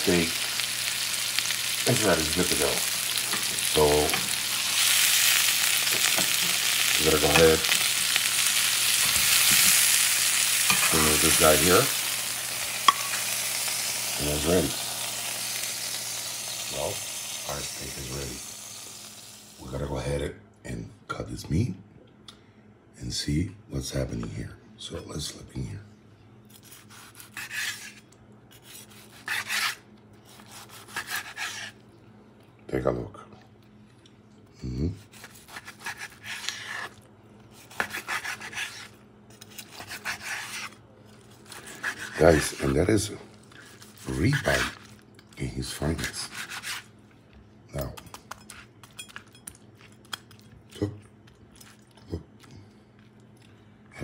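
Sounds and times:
knife sawing through steak: 0:04.7 - 0:10.0, 0:10.6 - 0:12.5, 0:26.5 - 0:31.8, 0:35.0 - 0:40.8, 0:41.4 - 0:42.8, 0:43.6 - 0:44.8, 0:46.0 - 0:46.9.

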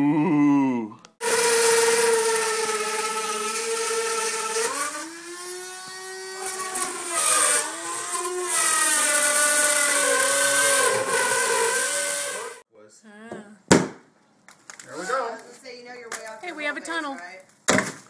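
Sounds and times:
rotary tool whining: 0:01.2 - 0:12.6.

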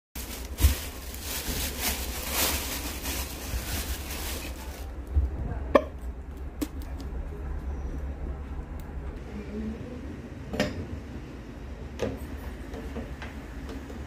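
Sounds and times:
plastic bag rustling: 0:00.2 - 0:05.1.

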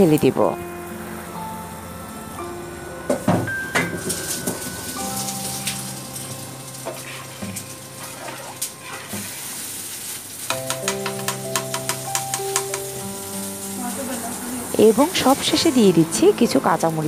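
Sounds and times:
hot oil sizzling: 0:00.0 - 0:17.0
soft background music: 0:00.0 - 0:17.0
ladle stirring in a pot: 0:04.1 - 0:13.1.

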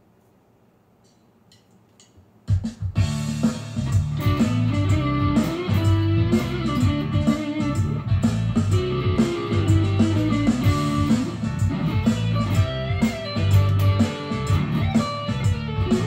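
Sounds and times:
drums: 0:02.0 - 0:16.0
bass: 0:03.0 - 0:16.0
electric guitar solo: 0:03.9 - 0:16.0.

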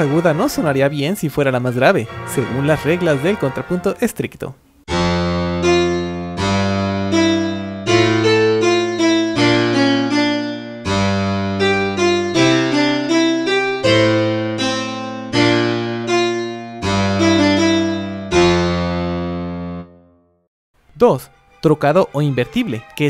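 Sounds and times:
keyboard counterpoint: 0:04.9 - 0:20.3.

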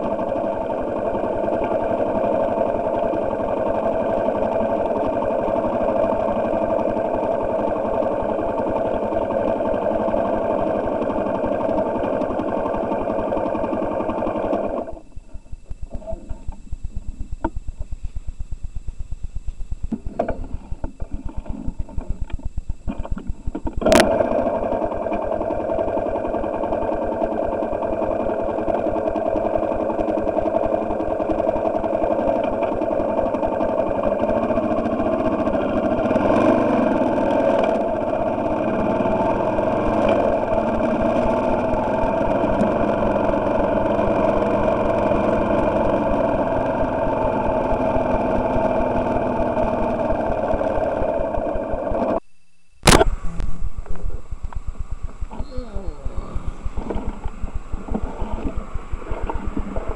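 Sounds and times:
motorcycle engine running: 0:00.0 - 0:52.2, 0:52.8 - 0:59.9
sharp click: 0:52.8 - 0:55.4.

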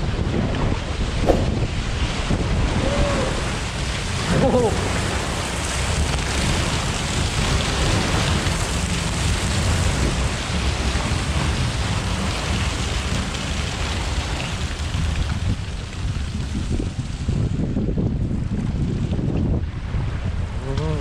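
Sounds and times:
air buffeting microphone: 0:00.8 - 0:04.8.

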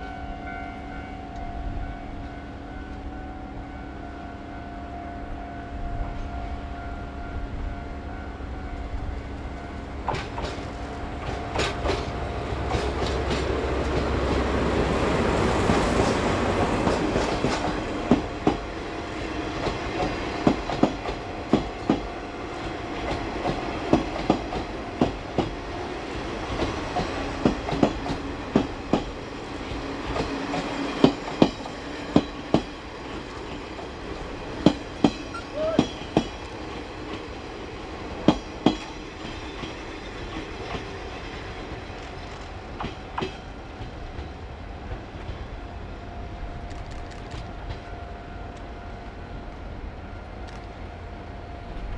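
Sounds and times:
diesel locomotive engine drone: 0:00.0 - 0:51.9
train wheels clicking over rail joints: 0:10.0 - 0:14.9, 0:15.7 - 0:18.7, 0:19.6 - 0:25.6, 0:26.4 - 0:37.4, 0:38.2 - 0:45.5.

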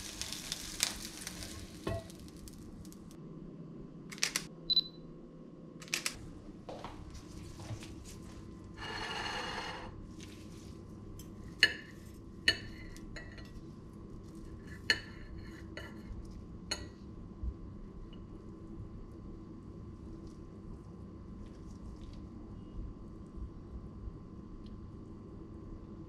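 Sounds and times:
cutlery scraping plate: 0:08.8 - 0:09.9.

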